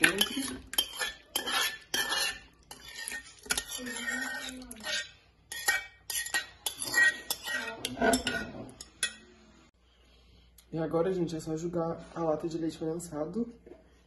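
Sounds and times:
utensils clinking against glass bowl: 0.0 - 9.2.

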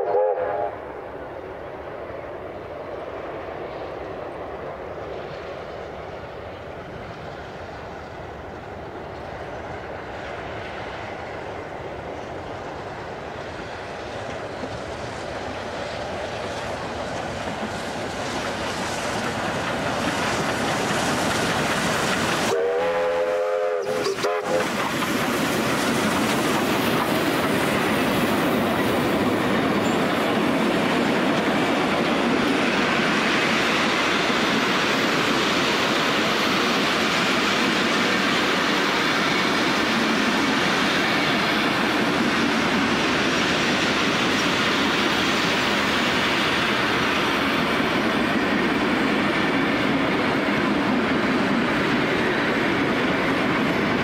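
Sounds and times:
steam whistle blast: 0.0 - 0.8, 22.5 - 24.8
steam locomotives approaching: 0.0 - 54.0
wheels clattering on rails: 12.1 - 22.6, 23.9 - 54.0.

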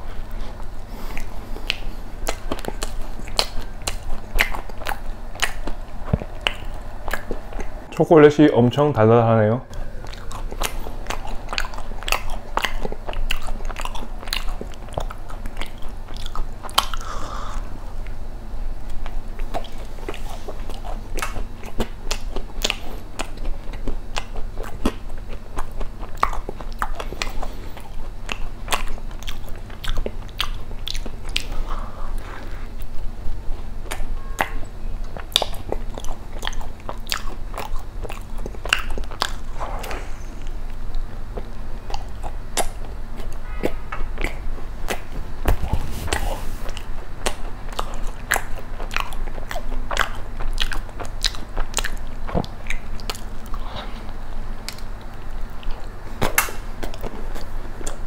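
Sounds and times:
chewing and biting crunches: 0.0 - 8.0, 9.7 - 18.2, 18.8 - 58.0
wet mouth sounds: 0.2 - 8.0, 9.7 - 18.2, 33.8 - 58.0.

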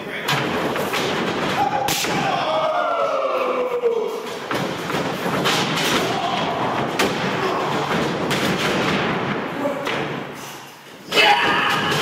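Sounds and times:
thuds on ring boards: 0.3 - 2.4, 4.3 - 10.3.

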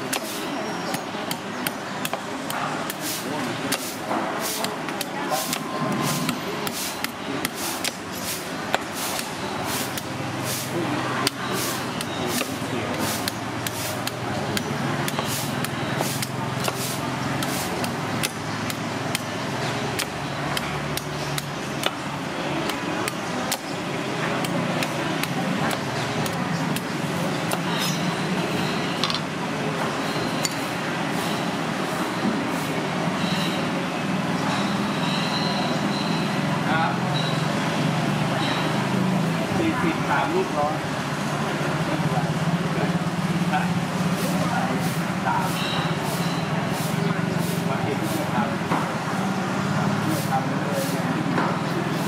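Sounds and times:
knife chopping coconut husk: 0.0 - 28.2
street background noise: 0.0 - 52.0.

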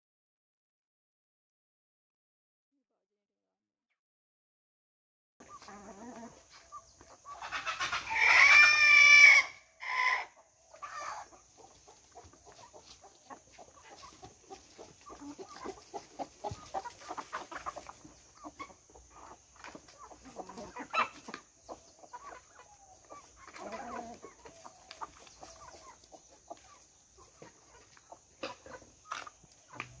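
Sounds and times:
hens clucking: 5.4 - 30.0
rooster crowing: 8.1 - 10.4.

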